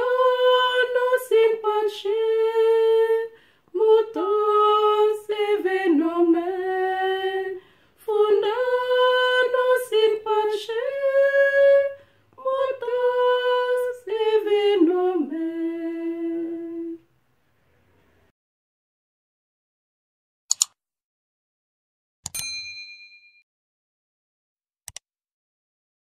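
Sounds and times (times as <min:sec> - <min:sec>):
two women singing unaccompanied: 0:00.0 - 0:17.1.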